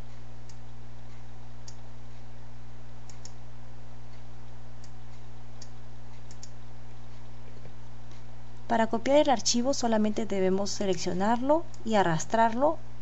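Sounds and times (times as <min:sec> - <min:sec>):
low electrical hum: 0:00.0 - 0:13.0
computer mouse clicks: 0:01.6 - 0:01.8, 0:03.1 - 0:03.4, 0:05.6 - 0:06.6.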